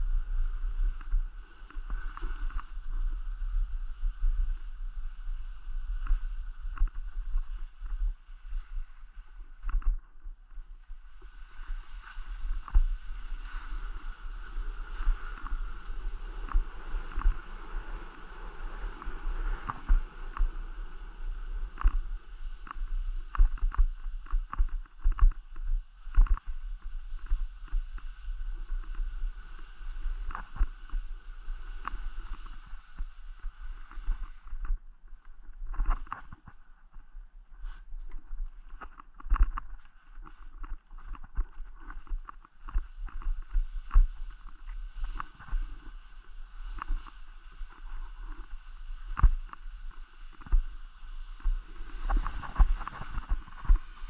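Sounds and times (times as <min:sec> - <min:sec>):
skis hissing on snow: 0:00.0 - 0:09.4, 0:11.0 - 0:24.8, 0:26.0 - 0:34.6, 0:42.8 - 0:54.0
steady low rumble: 0:00.0 - 0:54.0.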